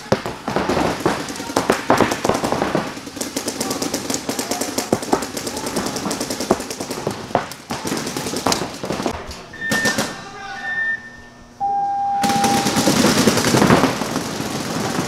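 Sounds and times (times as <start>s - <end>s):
paintball markers firing: 0.0s - 10.2s
sharp cracks: 0.0s - 10.2s, 12.2s - 15.0s.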